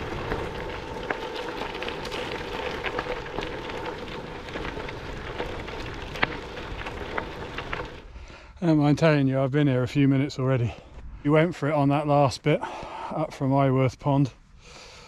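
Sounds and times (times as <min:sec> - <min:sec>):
small stones ticking: 0:00.0 - 0:08.2
bike tyres rolling on gravel: 0:00.0 - 0:14.2.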